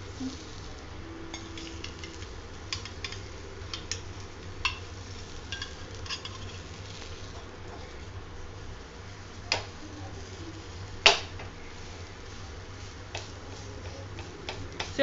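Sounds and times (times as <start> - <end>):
patty sizzling in butter: 0.0 - 15.0
steady low hum: 0.0 - 15.0
spatula scraping pan: 4.7 - 8.0.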